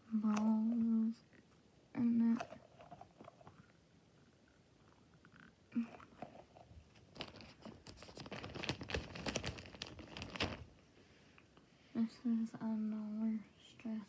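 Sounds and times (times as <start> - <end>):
stress toys crackling and crinkling: 2.1 - 3.7, 5.8 - 10.8.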